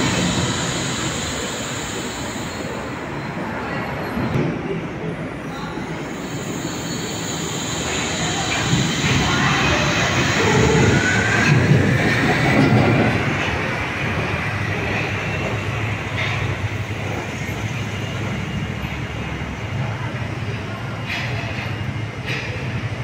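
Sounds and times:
monorail car running on rail: 0:00.0 - 0:23.0.

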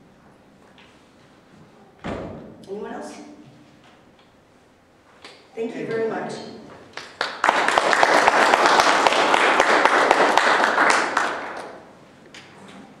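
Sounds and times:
audience applauding: 0:06.9 - 0:11.9.

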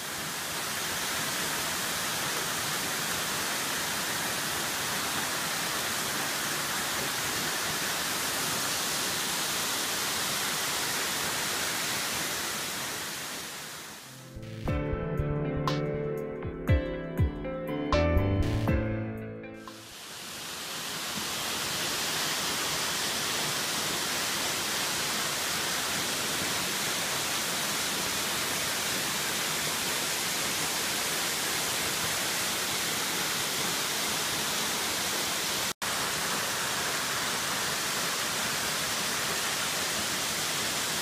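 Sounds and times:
waterfall roaring: 0:00.0 - 0:14.1, 0:19.7 - 0:41.0.

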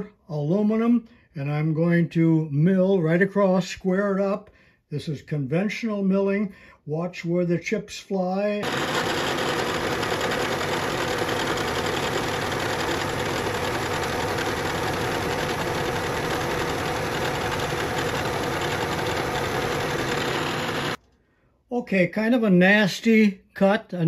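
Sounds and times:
milling machine cutting metal: 0:08.6 - 0:21.0.

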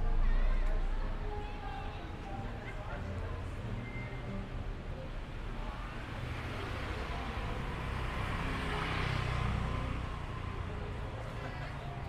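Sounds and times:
low rumble of traffic: 0:00.0 - 0:12.0
vehicle passing by: 0:06.0 - 0:12.0.

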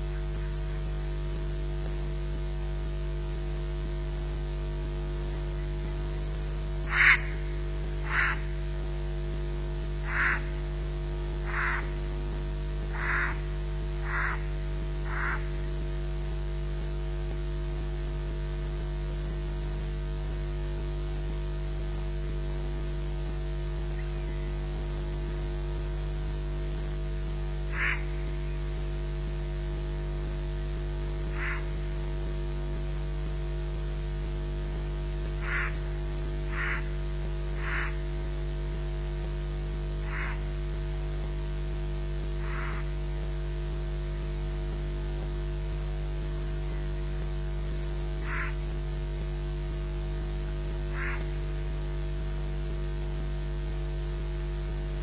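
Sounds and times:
electrical mains hum and hiss: 0:00.0 - 0:55.0
short bird calls: 0:06.9 - 0:08.5, 0:10.0 - 0:10.6, 0:11.5 - 0:12.0, 0:12.9 - 0:13.4, 0:14.0 - 0:14.5, 0:15.1 - 0:15.5, 0:27.7 - 0:28.6, 0:31.3 - 0:31.8, 0:35.4 - 0:35.8, 0:36.5 - 0:36.9, 0:37.6 - 0:38.0, 0:40.0 - 0:40.4, 0:42.4 - 0:42.9, 0:48.2 - 0:48.6, 0:50.9 - 0:51.4.

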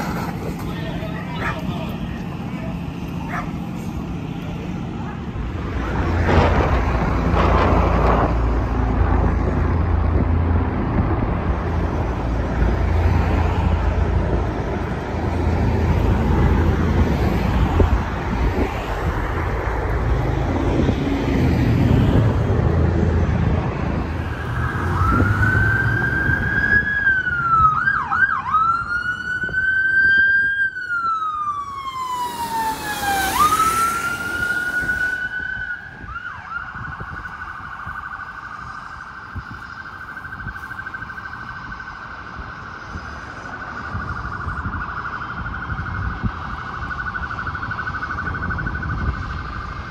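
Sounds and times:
helicopter flying low overhead: 0:00.0 - 0:37.9
police siren wailing and yelping: 0:23.8 - 0:49.9.

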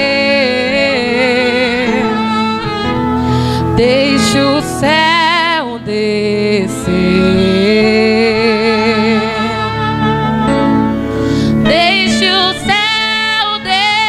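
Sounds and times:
woman singing worship song: 0:00.0 - 0:10.4, 0:11.4 - 0:14.0
instrumental backing: 0:00.0 - 0:14.0.

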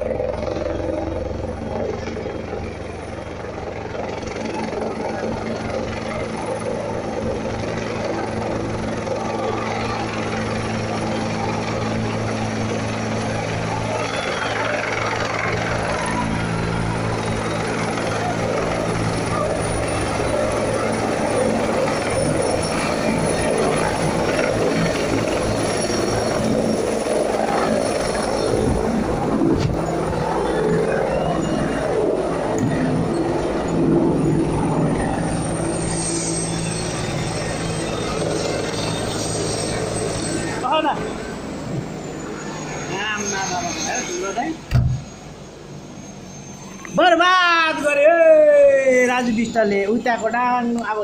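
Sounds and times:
helicopter rotor and engine: 0:00.0 - 0:51.0.

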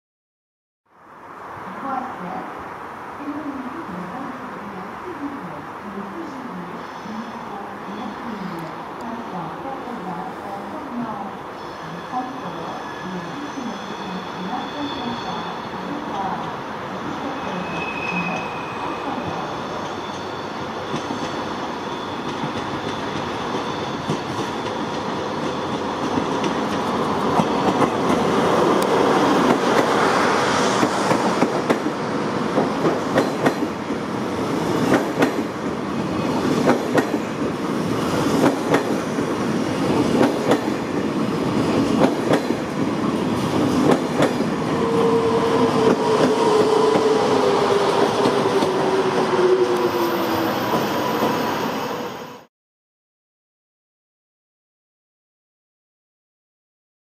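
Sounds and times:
train wheel squeal: 0:11.6 - 0:16.1, 0:17.2 - 0:25.0
train wheels clickety-clack: 0:20.9 - 0:21.4, 0:22.2 - 0:30.0, 0:30.8 - 0:31.9, 0:32.5 - 0:33.8, 0:34.7 - 0:35.5, 0:36.3 - 0:40.8, 0:41.6 - 0:44.5.

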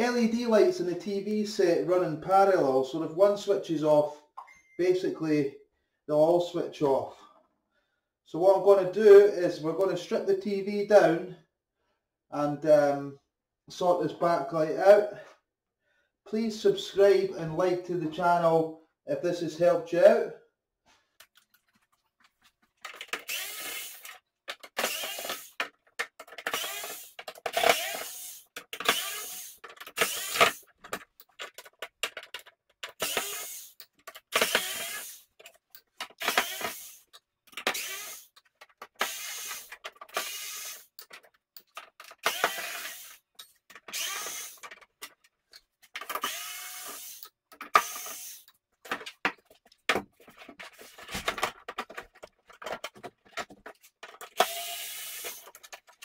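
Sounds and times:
electric screwdriver running: 0:23.1 - 0:24.2, 0:24.8 - 0:25.5, 0:26.4 - 0:30.6, 0:33.0 - 0:33.7, 0:34.3 - 0:35.2, 0:36.2 - 0:37.0, 0:37.7 - 0:38.3, 0:39.0 - 0:40.9, 0:42.2 - 0:43.2, 0:43.9 - 0:44.6, 0:46.1 - 0:48.4, 0:54.4 - 0:55.6.

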